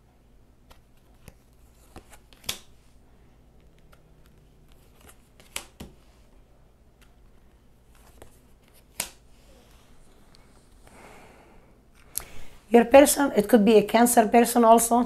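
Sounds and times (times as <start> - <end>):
cards being shuffled: 0.6 - 2.9, 3.6 - 6.2, 7.0 - 9.8
card snap: 2.3 - 2.7, 5.0 - 5.9, 8.7 - 9.2.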